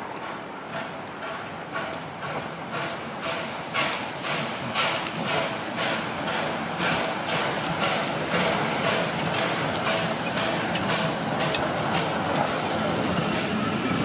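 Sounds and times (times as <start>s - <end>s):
running train noise: 0.0s - 14.0s
steam locomotive exhaust chuffing: 0.1s - 14.0s.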